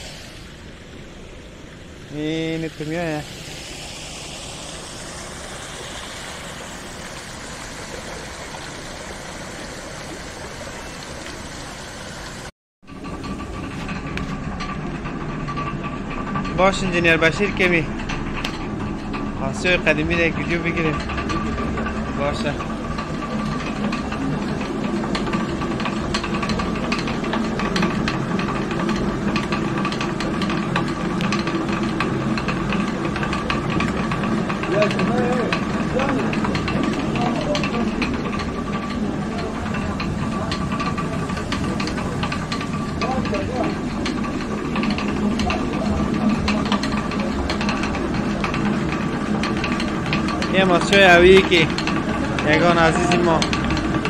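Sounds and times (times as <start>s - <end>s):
water rushing down flume: 0.0s - 54.0s
millstone rumbling and grinding: 12.9s - 54.0s
wooden chute clattering: 12.9s - 54.0s.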